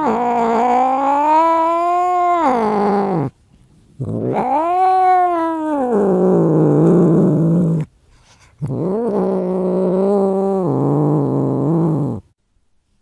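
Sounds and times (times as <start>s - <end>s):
cat yowling angrily: 0.0s - 3.3s, 4.0s - 7.0s.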